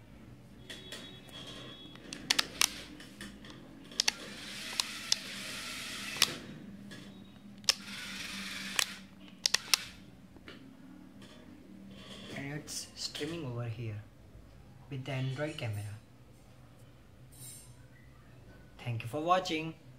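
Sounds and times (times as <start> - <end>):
sharp clicks: 1.9 - 5.4, 7.6 - 7.9, 8.7 - 9.9
small electric motors whirring: 4.0 - 6.4, 7.7 - 9.9.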